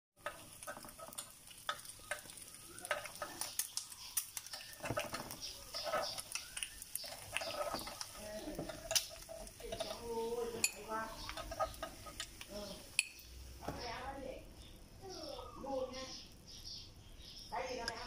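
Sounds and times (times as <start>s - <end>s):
metal spoon clicking in egg pan: 0.2s - 13.3s
eggs sizzling: 0.2s - 18.0s.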